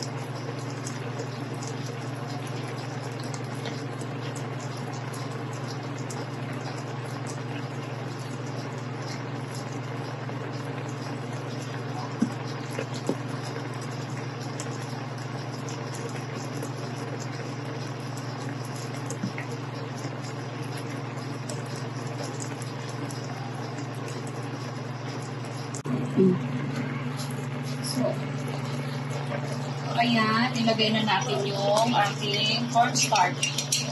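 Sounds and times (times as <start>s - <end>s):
sauce bubbling in a pan: 0.0s - 25.9s
steady low hum: 0.0s - 33.9s.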